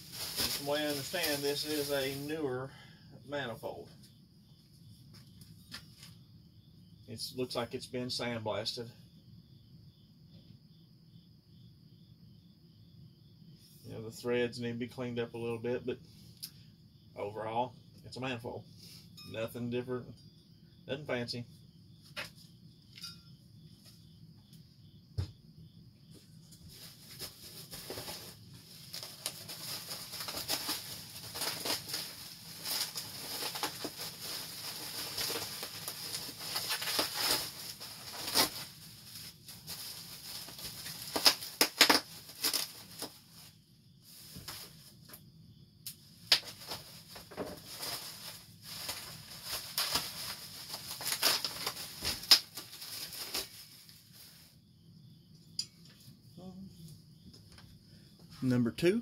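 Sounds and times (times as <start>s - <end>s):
bubble wrap snapping: 0.0s - 2.2s, 27.0s - 43.1s, 46.3s - 53.6s
bubble wrap crinkling and rustling: 0.0s - 2.3s, 26.5s - 44.9s, 46.3s - 54.4s.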